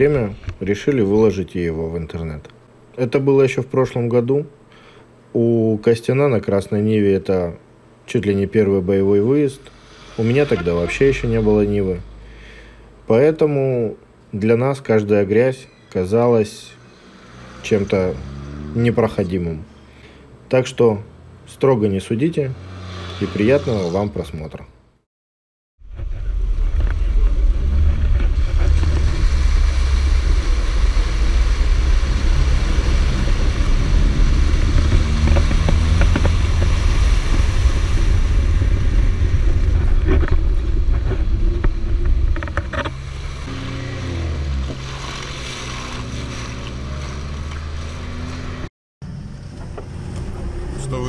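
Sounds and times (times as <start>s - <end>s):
wind noise: 25.8s - 43.4s
car engine running: 25.9s - 51.0s.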